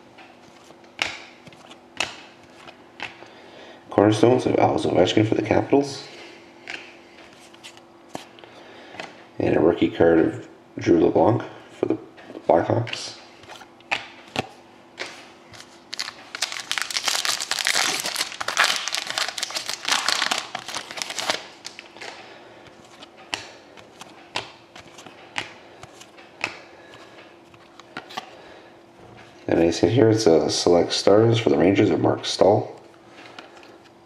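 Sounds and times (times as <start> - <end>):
cards being flipped by hand: 13.4 - 28.3
foil wrapper crinkling: 15.7 - 21.9.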